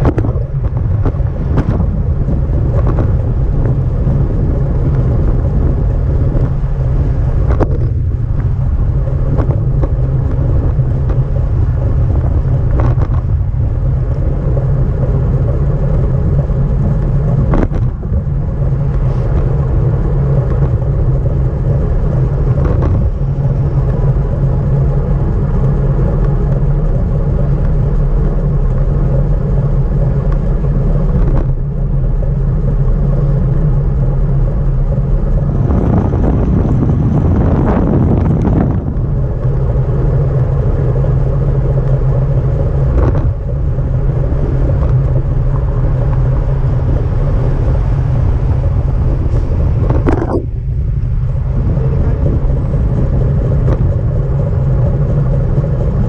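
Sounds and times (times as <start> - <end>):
road rumble: 0.0 - 56.0
wind rushing: 0.0 - 56.0.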